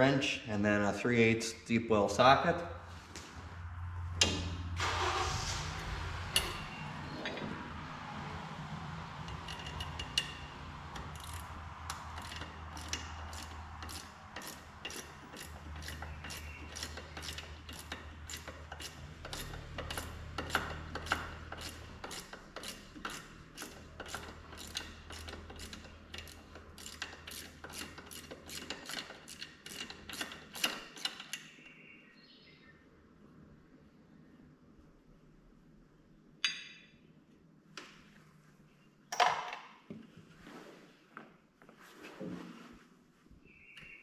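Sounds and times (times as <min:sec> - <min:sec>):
socket ratchet clicking: 0:11.0 - 0:31.5.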